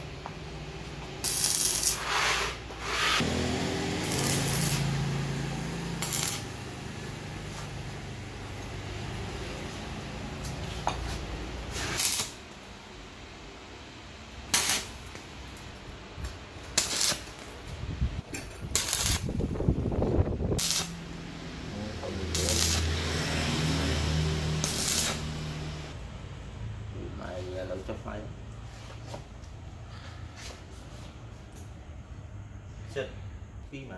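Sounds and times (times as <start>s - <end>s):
short sharp bursts: 1.2s - 5.0s, 5.8s - 6.6s, 11.7s - 12.4s, 18.7s - 19.4s, 22.2s - 22.9s, 24.6s - 25.6s.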